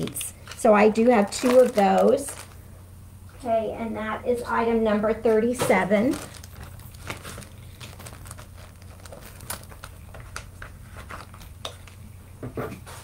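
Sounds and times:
packaging crinkling: 0:00.0 - 0:02.7, 0:05.5 - 0:12.2
low steady hum: 0:00.0 - 0:13.0.

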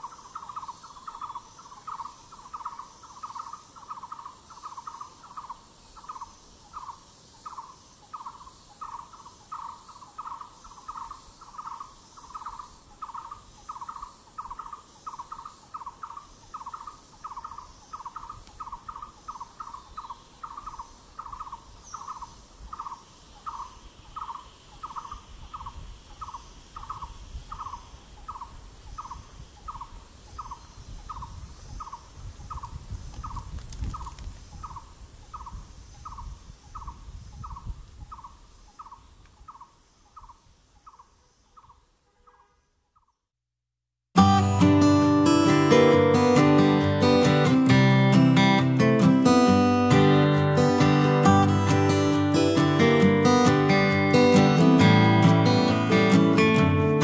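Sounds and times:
high insect drone: 0:00.0 - 0:41.6, 0:44.2 - 0:57.0
wind rumble on microphone: 0:25.0 - 0:39.6.

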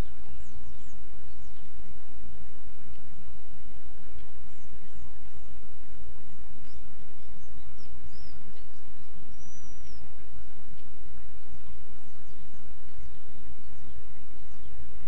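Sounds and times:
small birds chirping: 0:00.0 - 0:15.0
wind on microphone: 0:00.0 - 0:15.0
bird whistled call: 0:04.5 - 0:10.6.

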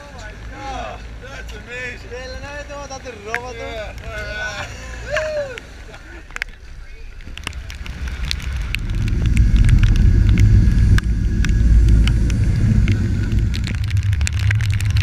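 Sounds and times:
wind buffeting microphone: 0:05.6 - 0:15.0.

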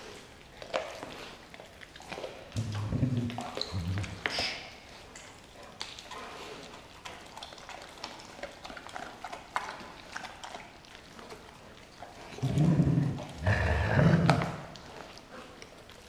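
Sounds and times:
dogs chewing raw meat: 0:00.0 - 0:16.0
dog growling low: 0:02.6 - 0:04.3, 0:12.3 - 0:14.9.

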